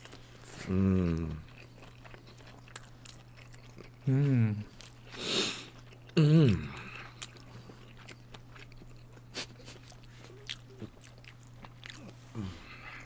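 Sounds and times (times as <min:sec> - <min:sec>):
low electrical hum: 0:00.0 - 0:13.0
person chewing: 0:00.0 - 0:13.0
falling hum-like vocal sound: 0:12.0 - 0:13.0.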